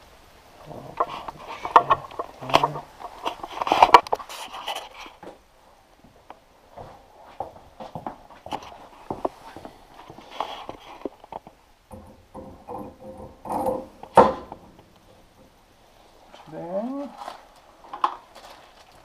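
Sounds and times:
small metal knocks and scrapes: 0.6 - 5.4, 6.8 - 15.5
sharp metal clunk: 11.9 - 14.8
rag rustling: 15.9 - 19.0.

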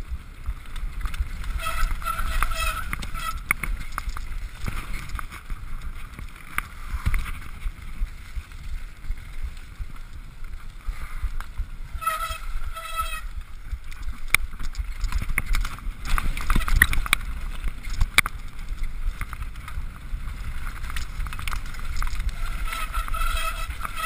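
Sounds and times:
bike knocking and rattling: 0.0 - 24.0
wind and tyres on dirt: 0.0 - 24.0
short squeals: 1.6 - 3.5, 22.4 - 24.0.

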